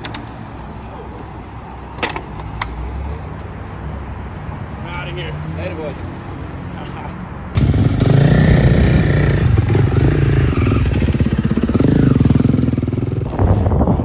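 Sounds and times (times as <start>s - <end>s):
dirt bike engine revving: 7.6s - 13.3s.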